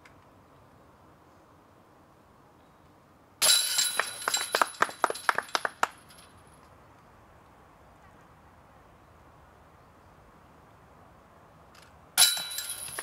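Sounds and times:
disc striking basket chains: 0:03.4 - 0:06.6, 0:11.8 - 0:13.0
metal chains jangling: 0:12.2 - 0:13.0.

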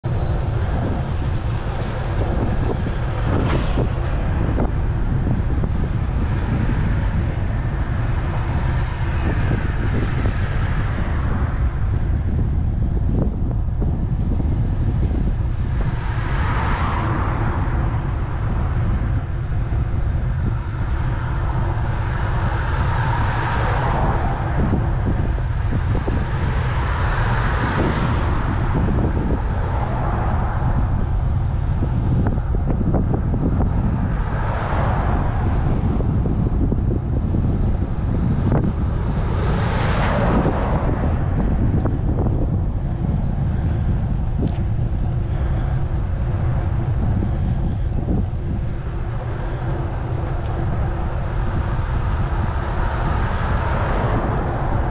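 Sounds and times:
cars passing: 0:00.0 - 0:54.9
road rumble: 0:00.0 - 0:54.9
wind on microphone: 0:00.0 - 0:54.9
short high beeps: 0:23.1 - 0:23.5.

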